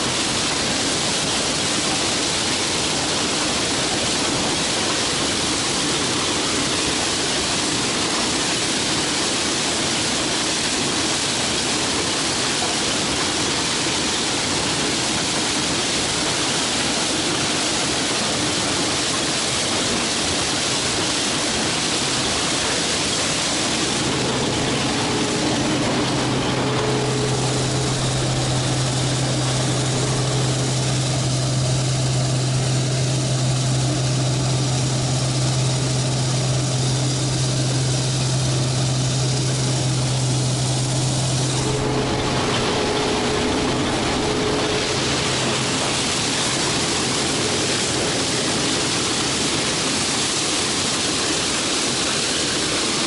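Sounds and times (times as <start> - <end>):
combine harvester running: 0.0 - 53.0
low hum: 23.3 - 49.7.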